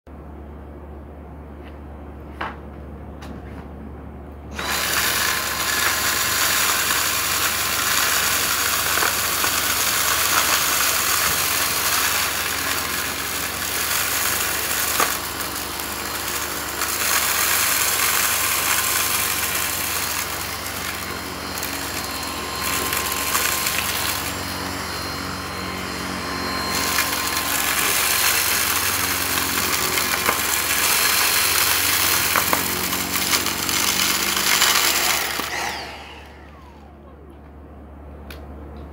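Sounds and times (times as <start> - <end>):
vacuum cleaner motor whine: 4.5 - 37.8
debris crunching and rattling: 26.6 - 35.8.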